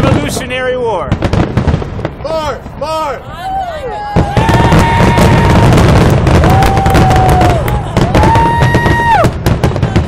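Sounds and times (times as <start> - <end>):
fireworks crackling: 0.0 - 10.0
spectators cheering: 3.1 - 9.4.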